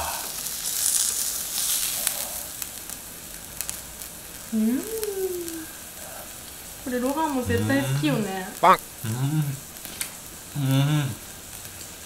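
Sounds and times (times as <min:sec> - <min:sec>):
meat sizzling on a grill plate: 0:00.0 - 0:12.0
person humming: 0:04.5 - 0:05.7, 0:07.3 - 0:09.7, 0:10.6 - 0:11.2.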